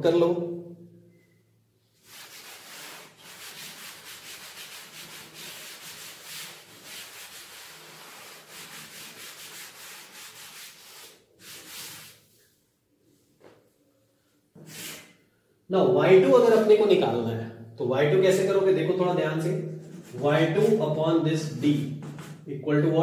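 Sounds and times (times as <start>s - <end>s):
chalk wiped off chalkboard: 2.0s - 12.6s, 14.6s - 15.2s, 19.8s - 20.8s.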